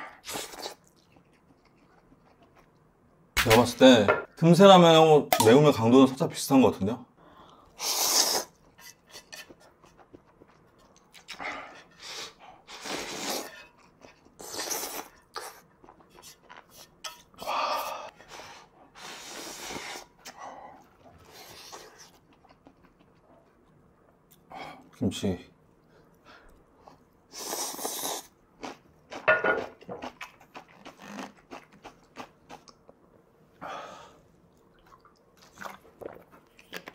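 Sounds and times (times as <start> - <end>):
person slurping noodles: 7.8 - 8.6, 11.3 - 13.6, 14.4 - 15.6, 27.3 - 28.3.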